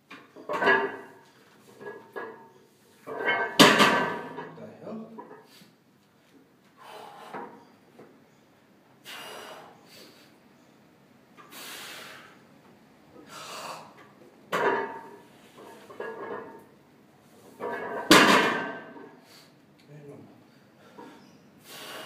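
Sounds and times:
heavy forceful breathing: 6.8 - 7.7, 9.0 - 10.4.

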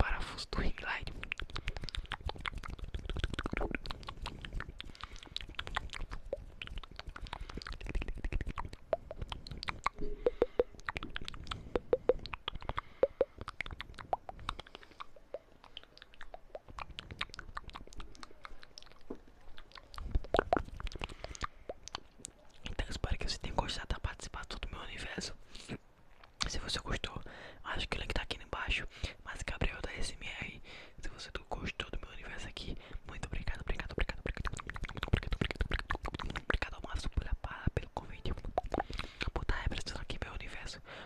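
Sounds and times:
wet mouth clicks and smacks: 0.8 - 27.2, 31.3 - 40.8
short hollow mouth pops: 1.1 - 22.8, 33.5 - 36.7, 38.2 - 39.8.

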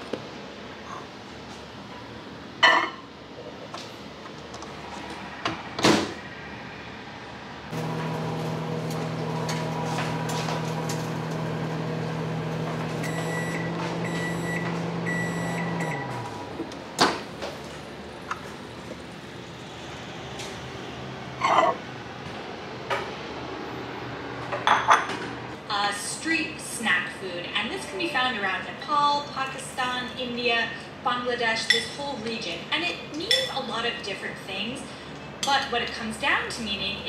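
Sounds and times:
microwave oven humming: 7.6 - 20.6.

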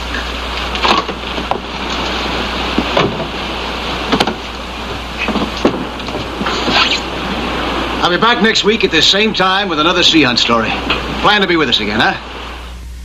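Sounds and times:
low hum: 0.0 - 13.0
wind and sea noise: 0.0 - 13.0.

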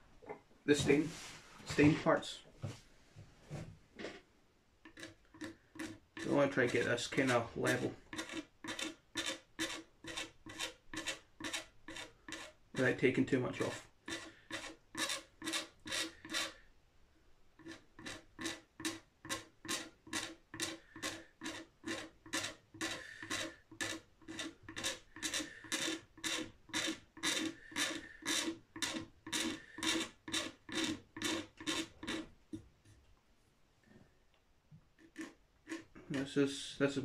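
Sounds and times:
blade scraping wood finish: 4.9 - 16.6, 17.6 - 32.3, 35.0 - 36.4.

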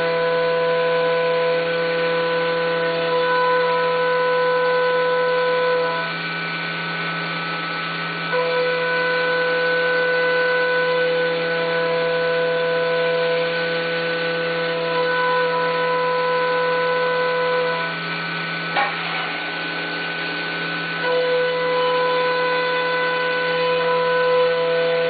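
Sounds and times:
milling machine whine: 0.0 - 25.0.

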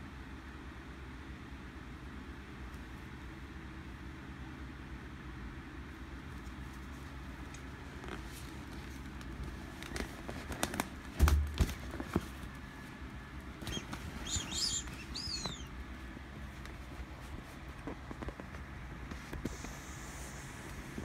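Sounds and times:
heavy thump: 11.2 - 11.8
inflatable vinyl toy rubbing: 13.6 - 15.7
short high squeaks: 13.7 - 15.7.

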